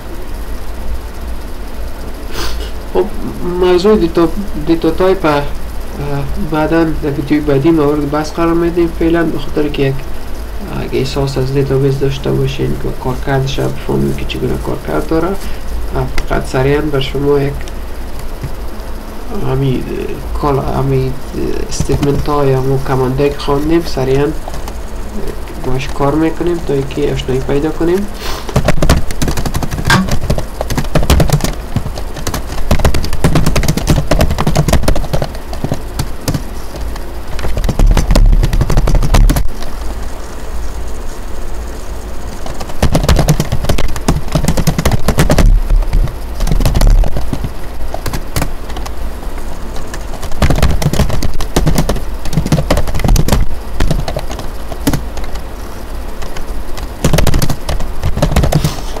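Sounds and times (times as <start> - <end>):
keyboard keystrokes clicking: 28.5 - 39.4, 49.8 - 55.4, 56.2 - 58.7.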